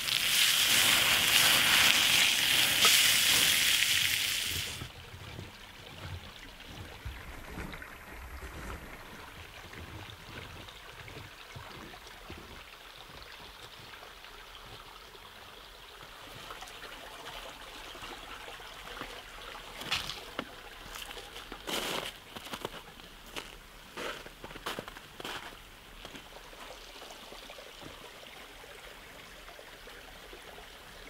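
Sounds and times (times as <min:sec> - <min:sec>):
stream trickling over stones: 0:00.0 - 0:31.0
footstep on wet stones: 0:19.8 - 0:26.3.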